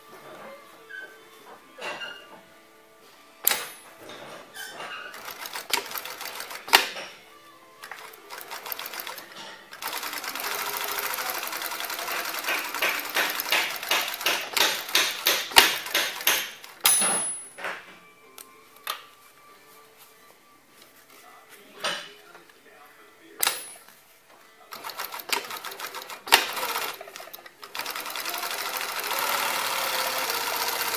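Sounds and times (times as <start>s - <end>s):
industrial sewing machine stitching: 5.1s - 7.0s, 8.0s - 16.7s, 24.7s - 30.9s.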